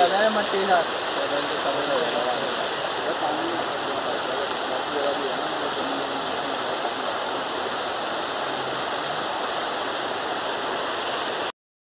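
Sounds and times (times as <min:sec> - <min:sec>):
water flowing over stones: 0:00.0 - 0:11.5.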